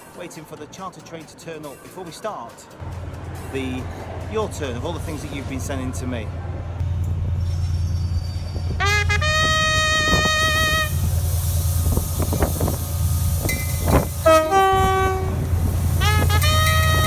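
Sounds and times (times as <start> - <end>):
diesel locomotive engine droning: 2.8 - 17.0
train clanking: 2.8 - 17.0
two-tone train horn: 8.8 - 11.1, 13.6 - 17.0.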